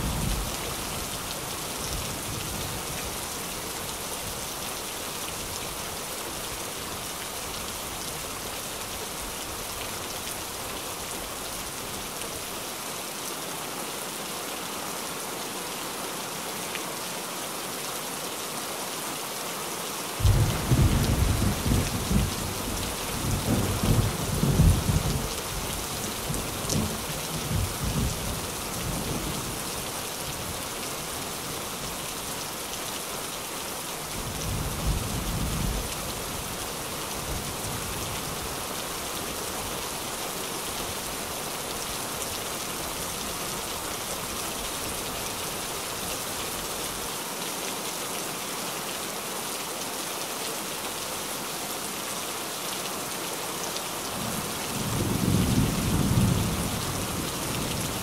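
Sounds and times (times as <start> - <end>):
rain on a tin roof: 0.0 - 58.0
thunder rumbling: 20.2 - 22.6.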